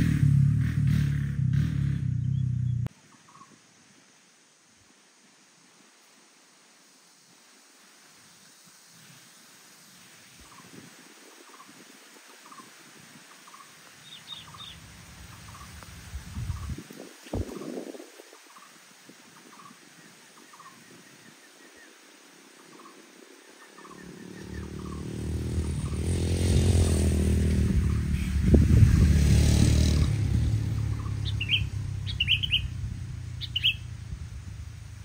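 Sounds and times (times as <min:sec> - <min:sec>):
bird chirps: 0:02.1 - 0:03.6, 0:13.5 - 0:16.8, 0:22.7 - 0:26.1, 0:30.7 - 0:34.0.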